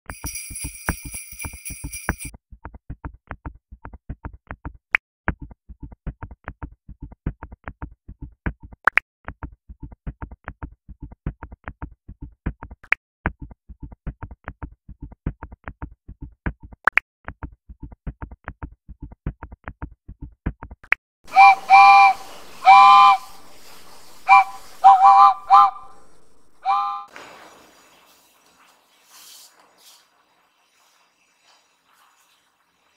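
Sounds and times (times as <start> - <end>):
bright chime: 0.1 - 2.3
light clicking beat: 0.1 - 2.3
whistle-like notes: 21.3 - 27.1.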